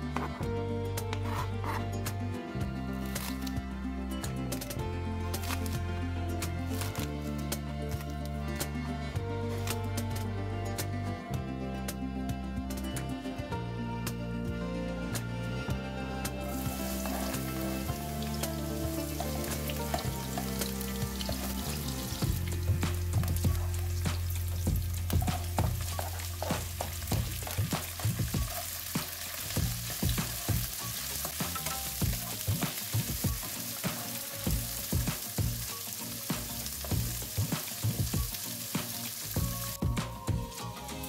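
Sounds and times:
wooden spatula scraping a pan: 1.2s - 2.0s, 16.4s - 22.0s, 23.1s - 34.9s
oil sizzling in a wok: 16.4s - 40.8s.

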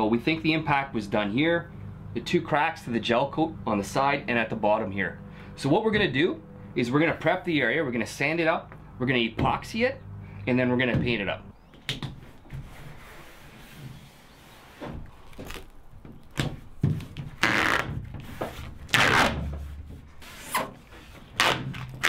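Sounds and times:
tape rubbed onto hull: 12.2s - 15.7s, 17.4s - 22.0s
masking tape ripping off roll: 15.0s - 16.5s, 17.4s - 19.4s, 20.4s - 22.0s.

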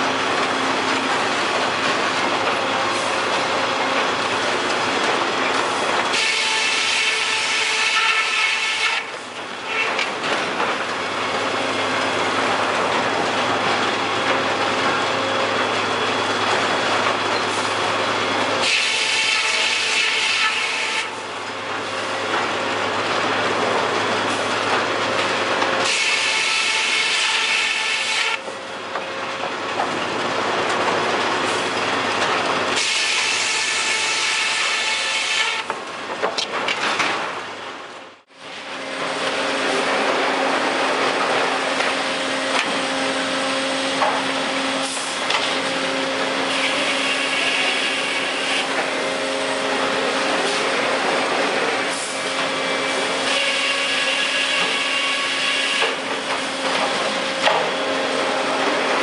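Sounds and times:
circular saws cutting logs: 0.0s - 37.0s, 38.5s - 59.0s
high steady saw whine: 25.2s - 28.4s, 38.5s - 59.0s.

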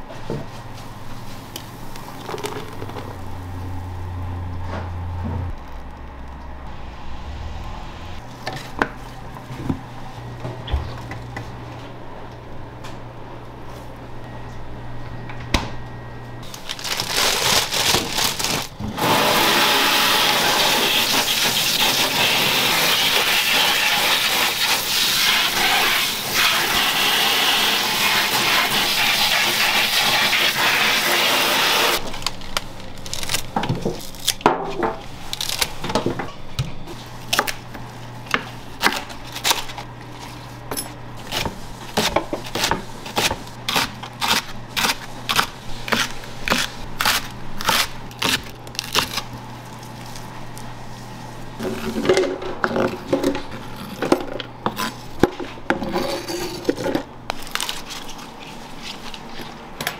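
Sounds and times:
low hum: 1.9s - 16.4s.

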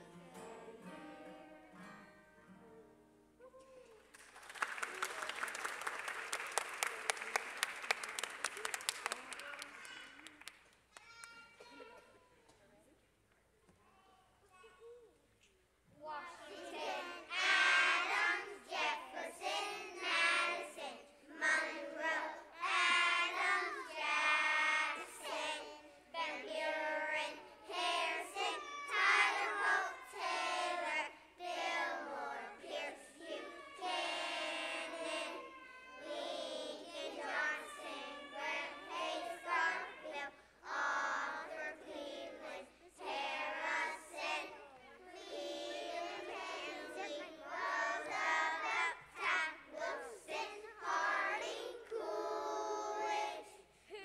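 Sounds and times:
children singing: 16.5s - 53.6s.

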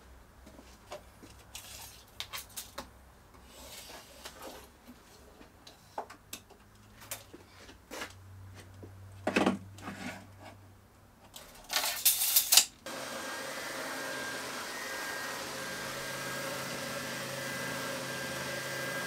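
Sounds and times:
belt sander running: 12.9s - 19.0s.

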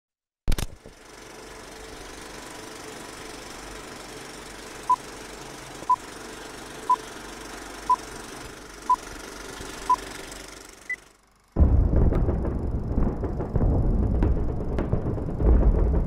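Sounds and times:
film projector whirring: 0.5s - 11.6s.

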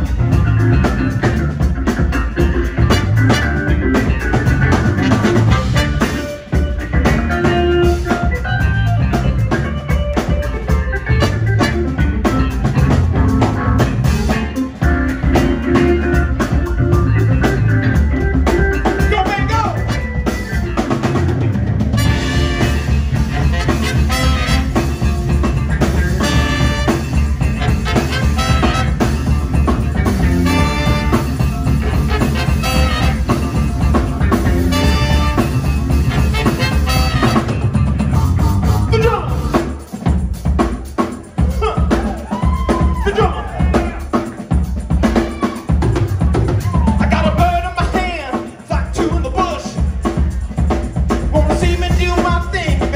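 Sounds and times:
organ: 0.0s - 40.0s
drum kit beat: 0.0s - 52.9s
live band playing: 0.0s - 52.9s.

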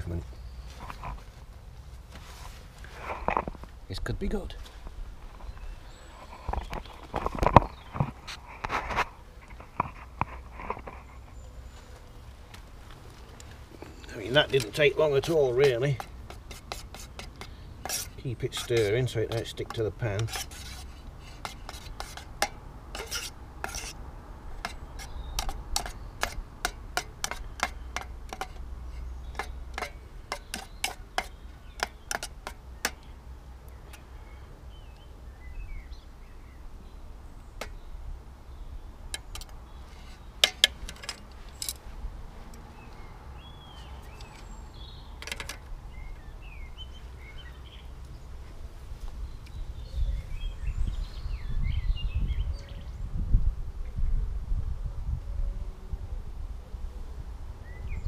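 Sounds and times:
spoon scraping metal saucepan: 14.4s - 24.0s, 24.6s - 33.0s.

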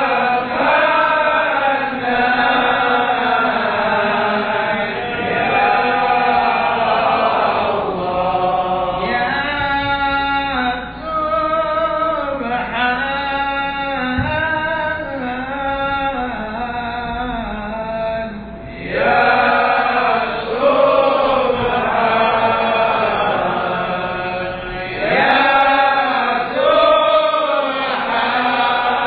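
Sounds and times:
man chanting into a microphone: 7.8s - 28.9s.

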